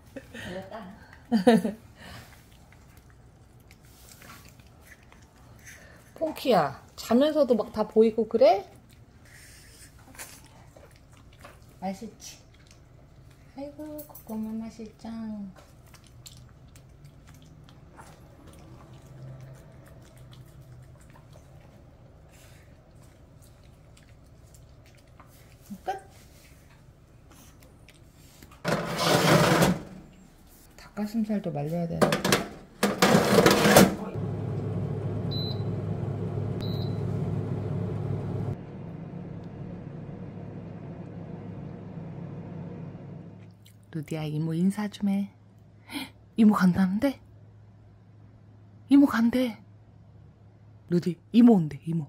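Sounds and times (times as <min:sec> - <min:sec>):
room hum: 0:00.0 - 0:44.5
low steady hum: 0:34.1 - 0:48.9
short electronic beep: 0:36.6 - 0:37.0.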